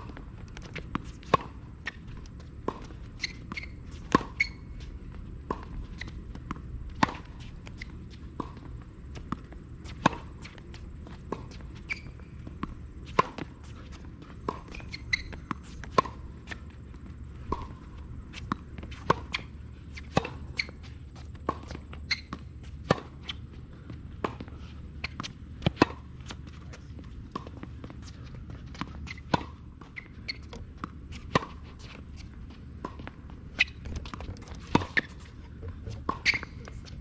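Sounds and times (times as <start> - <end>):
racket striking tennis ball: 2.7 - 4.8, 5.4 - 8.6, 9.2 - 10.6, 17.4 - 20.8, 28.7 - 35.4.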